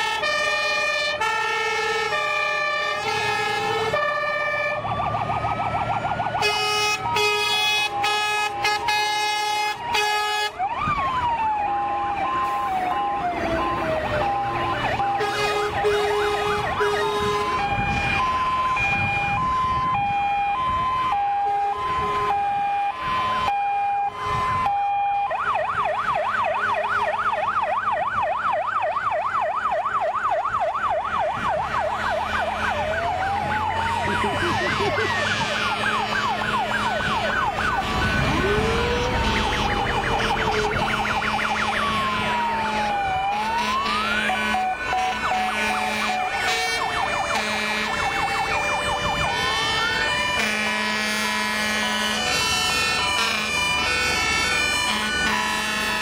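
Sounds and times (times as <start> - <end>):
fast yelp siren: 0.0 - 56.0
truck engines running: 0.0 - 56.0
two-tone hi-lo siren horns: 0.0 - 56.0
wailing sirens: 0.0 - 56.0
short loud horn blasts: 47.4 - 47.9, 50.4 - 53.6.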